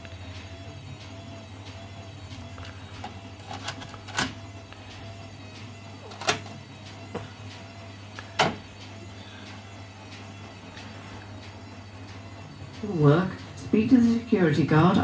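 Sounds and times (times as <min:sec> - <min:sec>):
steady low hum: 0:00.0 - 0:15.0
cassette deck mechanical clunks: 0:03.4 - 0:04.4, 0:06.1 - 0:06.6, 0:08.3 - 0:08.6.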